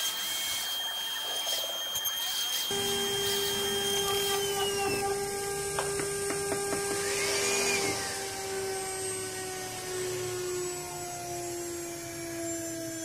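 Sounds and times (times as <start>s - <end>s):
router spindle cutting wood: 0.0s - 13.0s.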